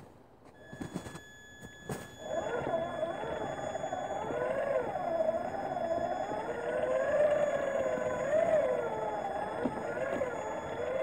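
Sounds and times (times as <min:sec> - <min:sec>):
electric motor whining: 0:00.6 - 0:11.0.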